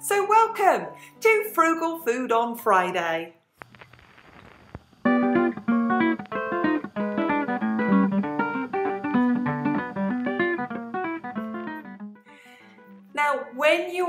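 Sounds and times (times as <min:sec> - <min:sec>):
plucked acoustic guitar: 0:05.0 - 0:13.1.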